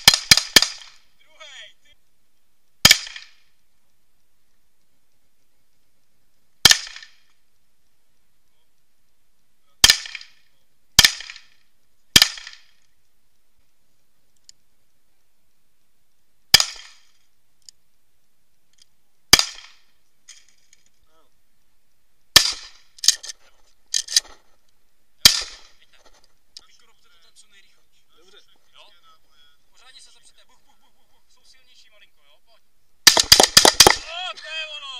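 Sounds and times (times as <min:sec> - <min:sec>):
pistol shots with echo: 0:00.0 - 0:01.0, 0:02.8 - 0:03.4, 0:09.8 - 0:10.4, 0:11.0 - 0:11.6, 0:12.2 - 0:12.8, 0:16.5 - 0:17.1, 0:19.3 - 0:19.9, 0:22.4 - 0:22.8, 0:25.2 - 0:25.8, 0:33.1 - 0:34.1.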